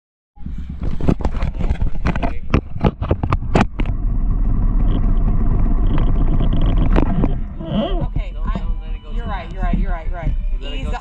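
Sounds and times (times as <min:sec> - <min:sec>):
sharp clicks and knocks: 0:00.7 - 0:08.7.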